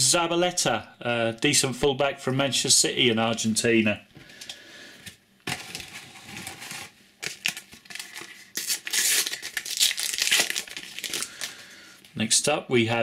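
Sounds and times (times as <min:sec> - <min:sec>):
rustling and clicks of packets: 0:04.2 - 0:12.2
wrapper crinkling: 0:05.4 - 0:11.8
sticker packet tearing open: 0:05.5 - 0:11.6.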